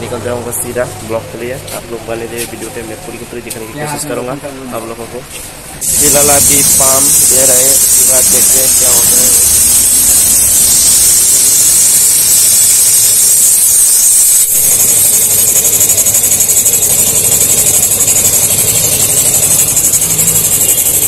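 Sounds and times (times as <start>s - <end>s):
compressed air hissing into tyre: 5.3s - 21.0s.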